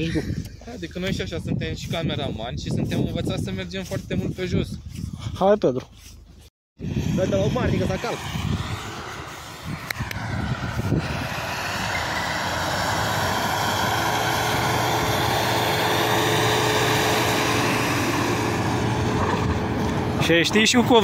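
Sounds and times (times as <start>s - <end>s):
suv engine at high revs: 6.9s - 21.0s.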